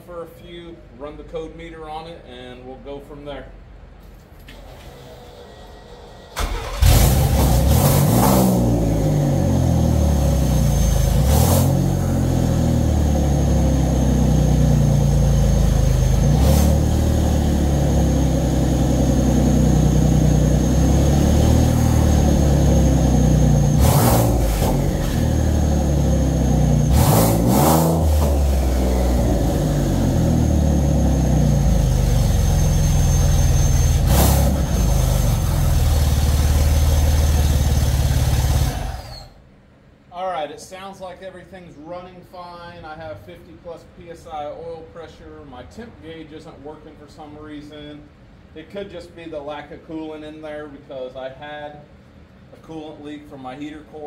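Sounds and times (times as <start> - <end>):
car engine cranking and starting: 4.4 - 39.4
car engine idling: 6.3 - 39.3.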